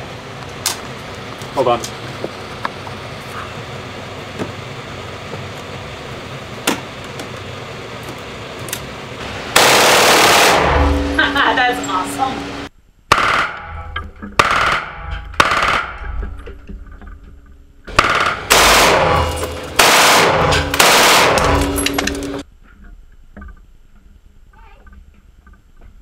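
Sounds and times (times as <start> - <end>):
submachine gun bursts: 9.6 - 10.7, 18.0 - 22.4.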